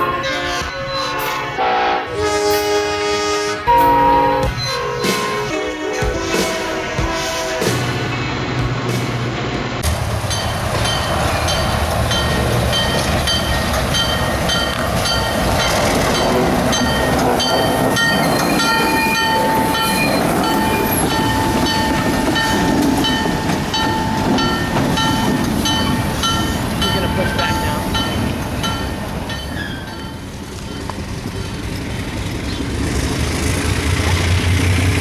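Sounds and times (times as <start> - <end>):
locomotive engine rumbling: 0.0 - 35.0
locomotive bell ringing: 10.3 - 31.7.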